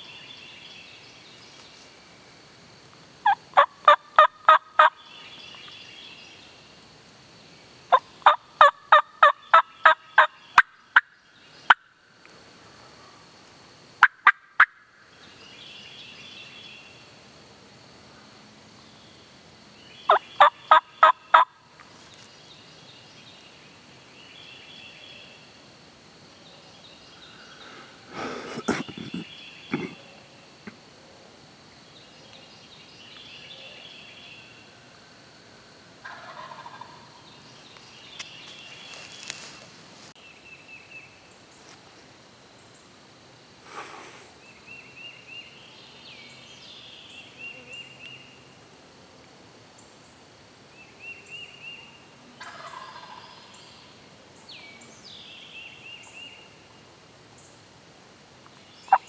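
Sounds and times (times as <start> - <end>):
wild turkey gobbling: 3.2 - 5.0, 7.9 - 11.1, 14.0 - 14.8, 20.1 - 21.5, 36.0 - 37.2, 52.4 - 53.5.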